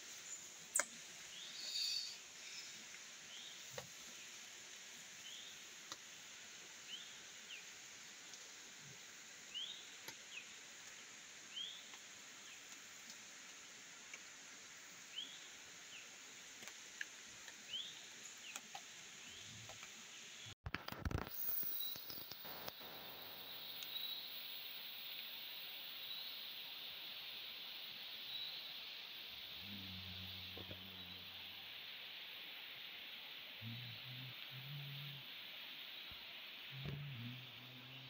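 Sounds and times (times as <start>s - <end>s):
insect chorus: 0.0s - 13.2s, 21.0s - 38.0s
short chirping calls: 0.8s - 2.2s.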